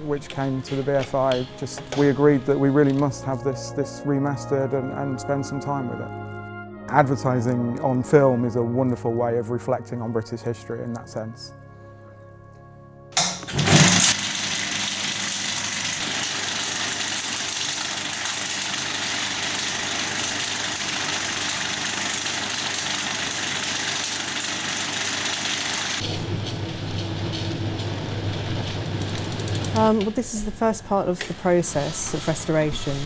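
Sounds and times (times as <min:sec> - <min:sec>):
film projector whirring: 0:13.2 - 0:30.2
projector start-up burst: 0:13.5 - 0:30.4
low motor hum: 0:26.0 - 0:30.2.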